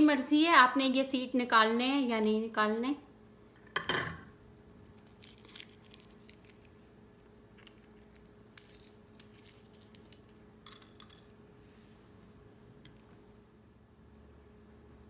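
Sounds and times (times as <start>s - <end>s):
knife crunching through chilli: 4.8s - 6.9s, 7.5s - 11.2s.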